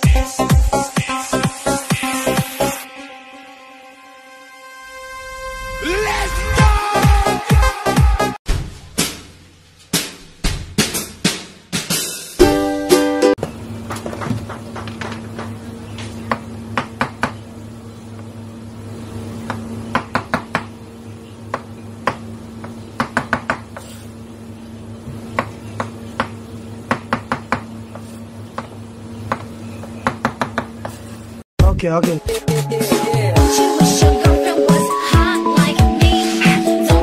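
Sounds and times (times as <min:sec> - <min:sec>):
steady low hum: 0:13.4 - 0:31.8
knife chopping on plastic board: 0:16.3 - 0:17.4, 0:19.4 - 0:20.7, 0:21.5 - 0:24.0, 0:25.3 - 0:31.0.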